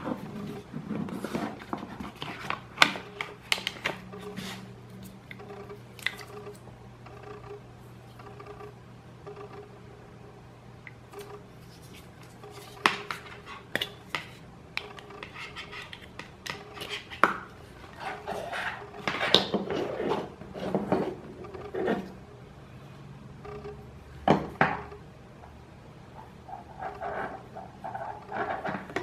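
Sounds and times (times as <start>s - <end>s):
cable rubbing and scraping: 26.5s - 29.0s.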